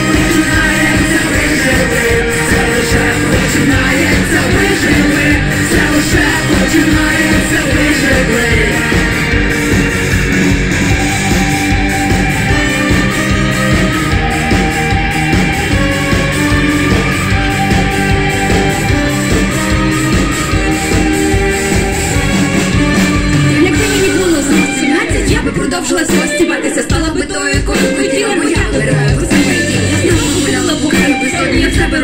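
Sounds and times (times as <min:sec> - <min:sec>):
people singing: 0:00.0 - 0:09.5, 0:23.6 - 0:32.0
brass section playing: 0:00.0 - 0:26.5
electric guitar: 0:00.0 - 0:32.0
steady drum beat: 0:00.0 - 0:32.0.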